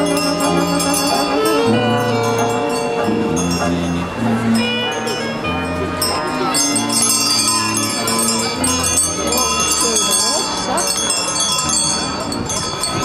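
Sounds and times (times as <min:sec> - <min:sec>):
low held tones: 0:00.0 - 0:08.2
many bells ringing: 0:00.0 - 0:13.0.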